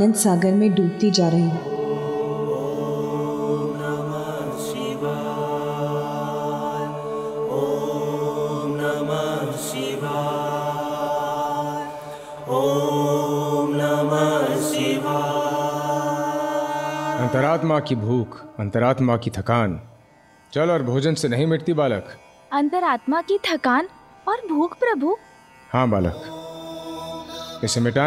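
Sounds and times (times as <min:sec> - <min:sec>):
men chanting held notes: 0:00.0 - 0:19.1.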